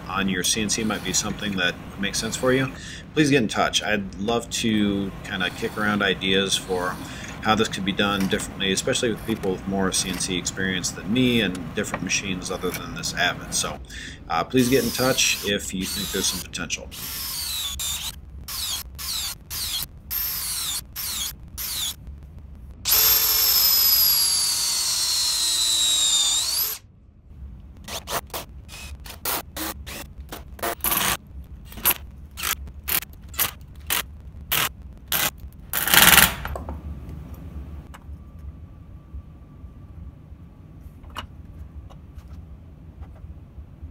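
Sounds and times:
cordless drill boring into wood: 0:14.6 - 0:21.9, 0:22.9 - 0:26.8.

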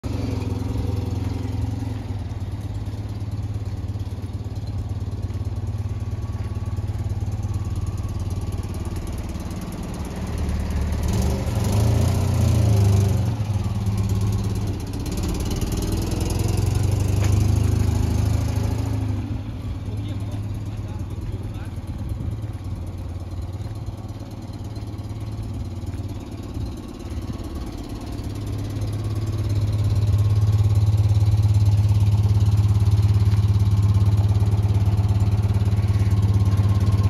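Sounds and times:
car engine idling: 0:00.0 - 0:37.0.

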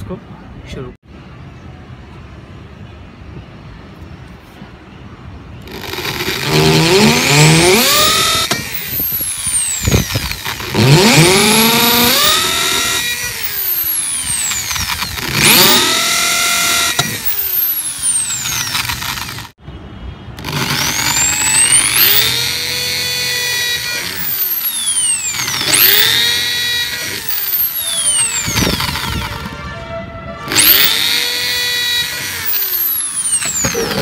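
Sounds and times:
electric drill whining: 0:05.7 - 0:19.6, 0:20.4 - 0:29.6, 0:30.5 - 0:34.0.

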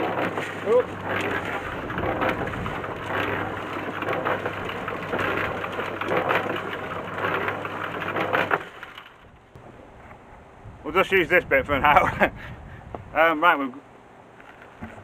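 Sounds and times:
wet concrete churning and sliding: 0:00.0 - 0:09.0
concrete mixer motor hum: 0:00.0 - 0:09.7.

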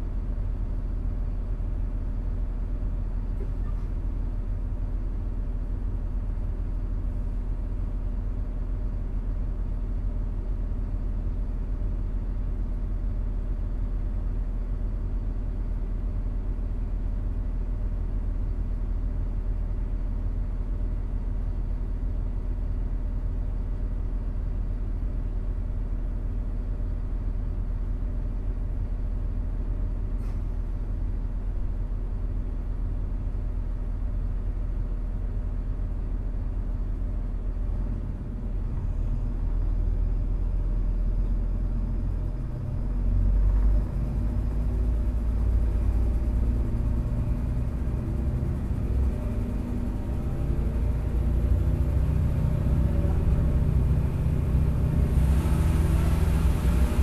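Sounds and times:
railcar diesel engine idling: 0:00.0 - 0:57.0
train pulling away rumble: 0:42.1 - 0:57.0.

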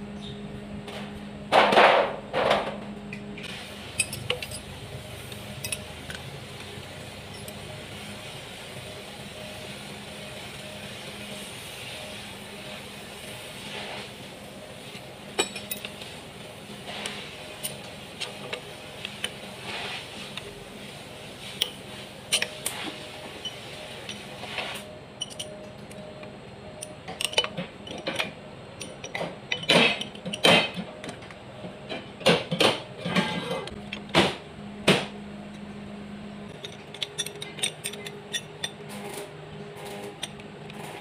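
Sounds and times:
wrench clinking on metal: 0:04.0 - 0:04.7, 0:05.6 - 0:06.2, 0:15.4 - 0:16.0, 0:25.2 - 0:25.8, 0:26.8 - 0:30.8, 0:36.5 - 0:38.8.

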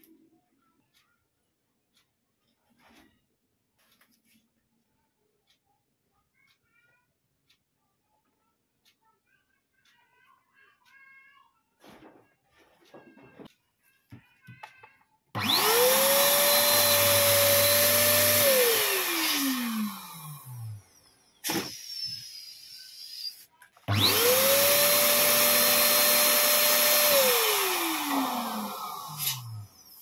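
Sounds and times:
electric balloon pump running: 0:15.4 - 0:30.0.

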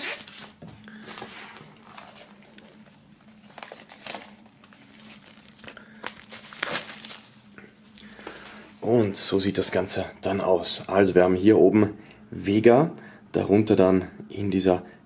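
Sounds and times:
plastic film crinkling: 0:00.0 - 0:08.6.

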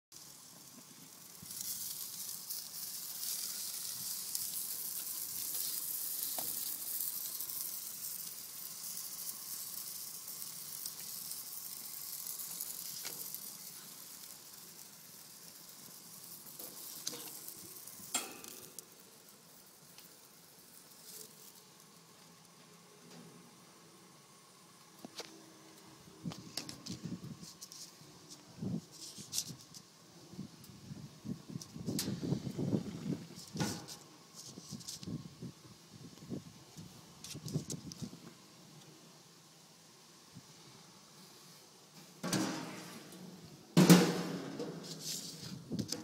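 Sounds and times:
hot dogs sizzling on grill: 0:00.1 - 0:46.0
sharp clicks and knocks: 0:18.1 - 0:18.9.

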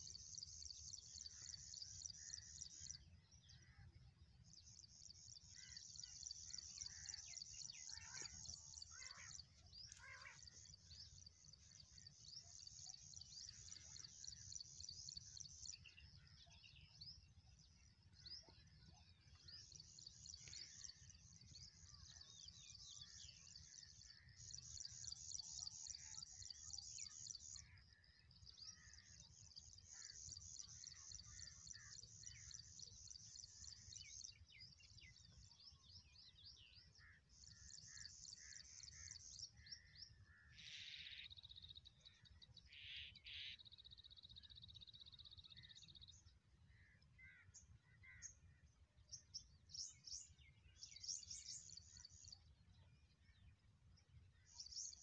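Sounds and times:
small birds chirping and trilling: 0:00.0 - 0:55.0.

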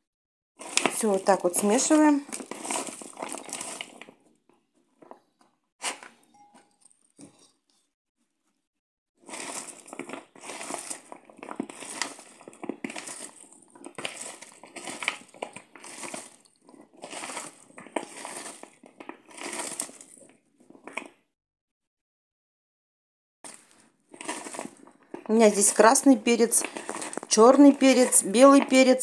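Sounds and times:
potatoes rustling in plastic bowl: 0:00.6 - 0:04.4, 0:09.2 - 0:21.1, 0:23.5 - 0:29.0.

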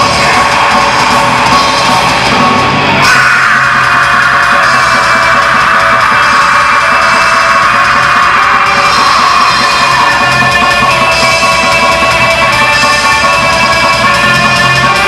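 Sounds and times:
heavy metal band playing: 0:00.0 - 0:15.0
vocalist screaming: 0:02.9 - 0:12.0.

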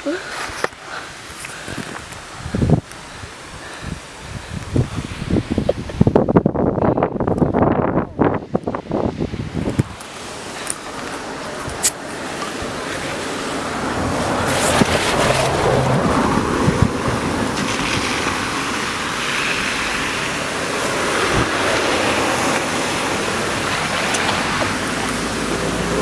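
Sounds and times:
wind buffeting microphone: 0:01.0 - 0:26.0
water jetting from burst pipe: 0:09.6 - 0:26.0.

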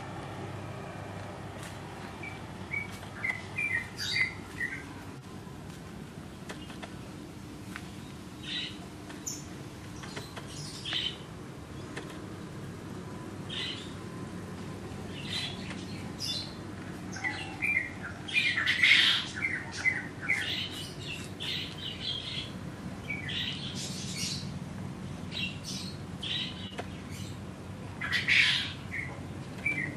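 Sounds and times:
small birds chirping: 0:01.6 - 0:07.1, 0:07.7 - 0:29.9.

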